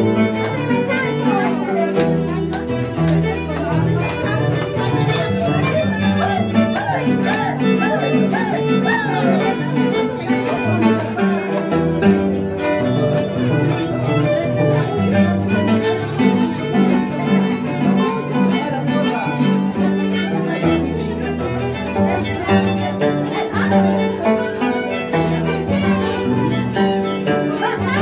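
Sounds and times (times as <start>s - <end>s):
violin melody with vibrato: 0.0s - 28.0s.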